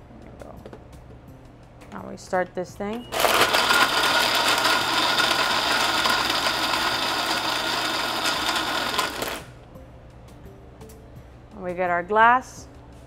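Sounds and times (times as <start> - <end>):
blender crushing ice: 3.1 - 9.5.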